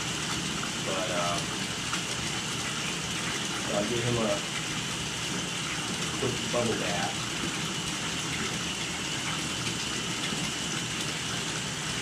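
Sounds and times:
tap water filling bathtub: 0.0 - 12.0.

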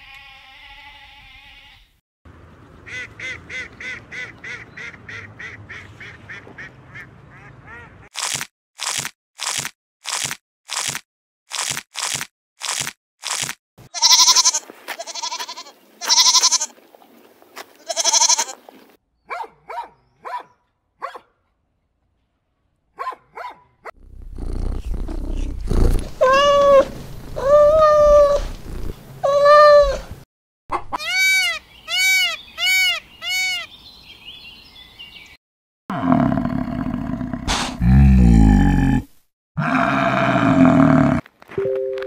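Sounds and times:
rabbits crunching greens: 8.2 - 13.6
cat purring: 24.0 - 26.2
cat meowing: 26.2 - 28.5, 29.2 - 30.0
loud pitched animal calls: 30.9 - 33.7.

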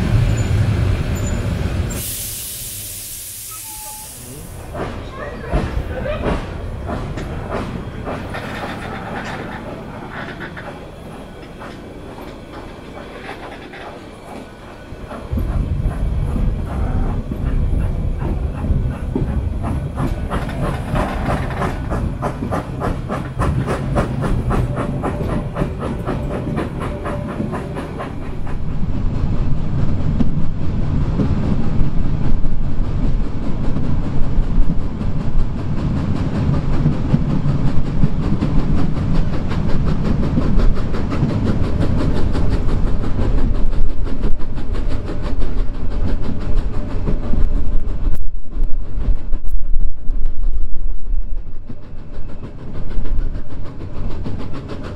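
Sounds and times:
steam hissing: 0.0 - 29.6
steam locomotive exhaust beats: 0.0 - 54.9
train coaches rumbling: 0.0 - 54.9
wheels clattering over rails: 4.7 - 28.8.

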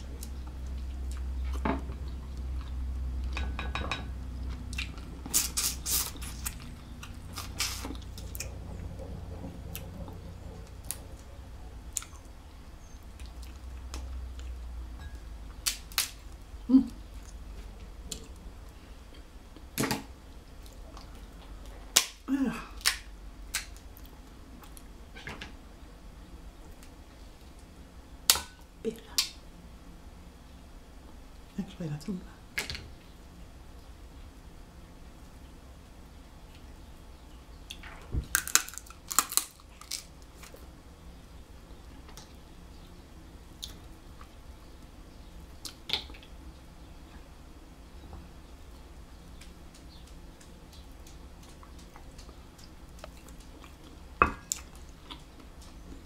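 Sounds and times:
chewing: 4.4 - 12.3, 49.7 - 56.0
crab shell cracking: 15.6 - 16.2, 38.3 - 40.5.

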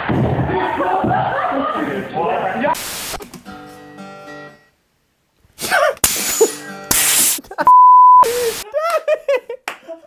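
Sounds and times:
harsh hissing bursts: 2.8 - 3.2, 5.6 - 7.4
censor bleep: 7.7 - 8.3.

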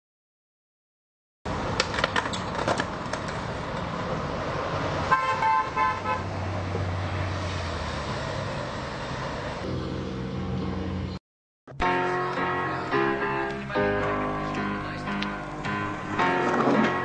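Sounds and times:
street traffic: 1.5 - 17.0
car horn honking: 5.1 - 6.3.

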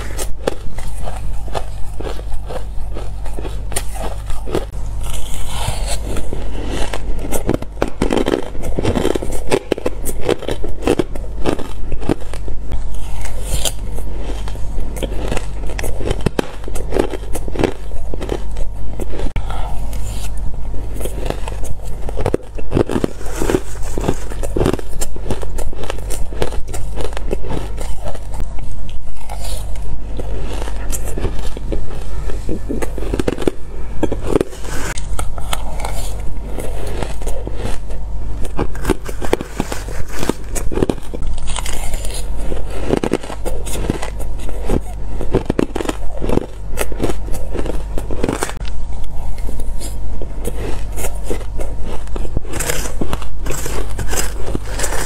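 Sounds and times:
crunching and chewing shaved ice: 0.0 - 55.0
metal spoon scraping ice: 49.8 - 55.0.

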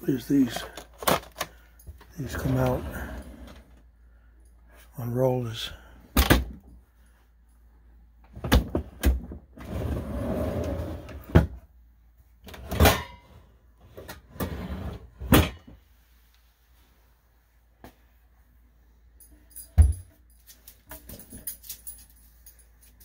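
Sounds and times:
wooden drawers rolling on rollers: 9.6 - 11.5.

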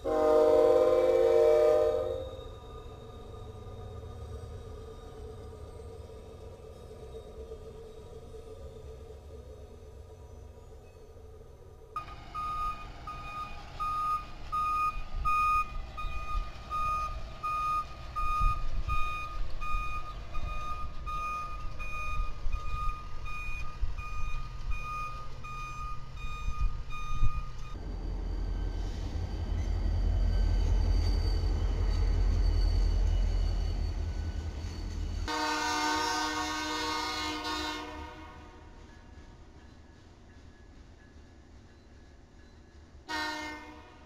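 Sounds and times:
diesel locomotive rumbling past: 0.0 - 44.0
truck backup alarm beeping: 12.0 - 27.8.

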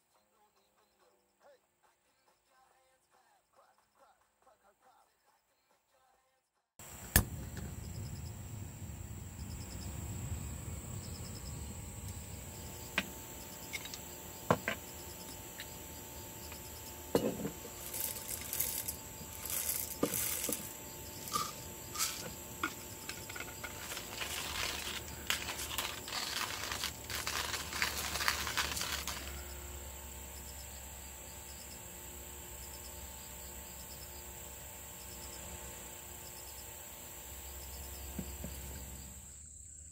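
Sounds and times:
crickets and insects chirping: 6.8 - 39.9
coffee beans rattling: 12.7 - 29.5
coffee gear clattering: 16.5 - 29.4.

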